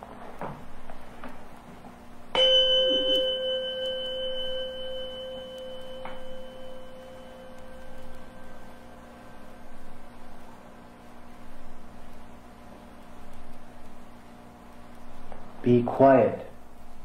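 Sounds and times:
bell ringing: 2.3s - 9.1s.

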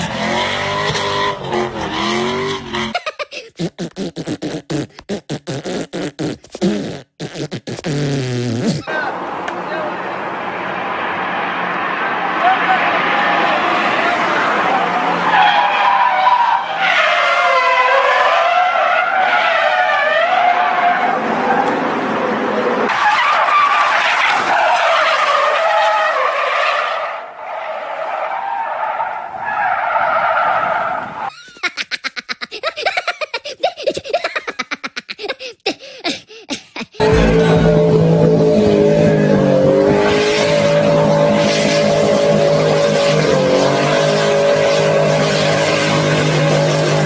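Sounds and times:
car tyres squealing: 0.0s - 3.0s, 3.6s - 36.0s, 36.9s - 47.0s
cartoon laughter: 2.8s - 5.0s, 31.3s - 37.9s.

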